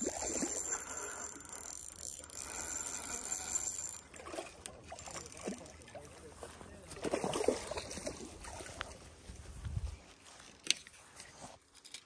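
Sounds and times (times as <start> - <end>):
spinning reel whirring: 0.0 - 5.8.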